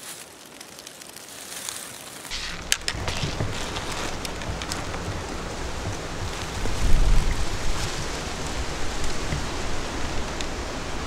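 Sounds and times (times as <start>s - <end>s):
leaves crunching underfoot: 0.0s - 10.8s
wind rumble on microphone: 2.3s - 11.0s.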